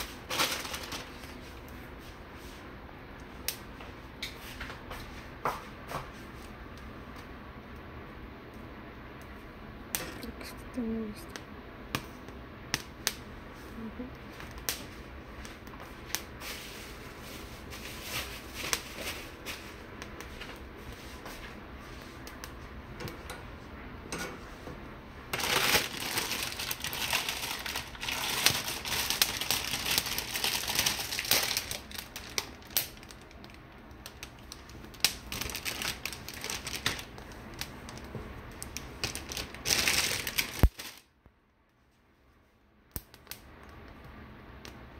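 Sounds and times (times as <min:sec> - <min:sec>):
gas burner flame hiss: 0:01.1 - 0:29.4
peppers popping and crackling: 0:25.3 - 0:41.1.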